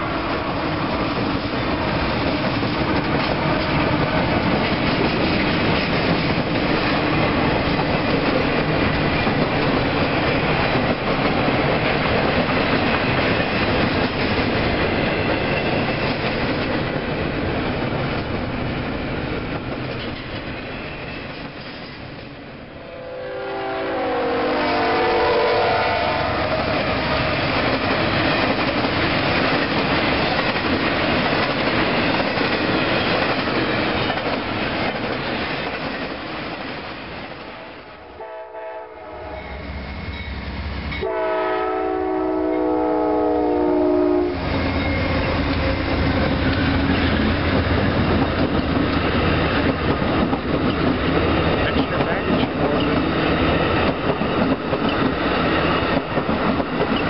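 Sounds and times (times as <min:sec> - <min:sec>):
passenger train humming: 0:00.0 - 0:57.0
train wheels clattering: 0:00.9 - 0:22.4, 0:26.5 - 0:37.6, 0:44.4 - 0:57.0
train horn: 0:22.8 - 0:26.8, 0:37.6 - 0:40.3, 0:40.9 - 0:45.2.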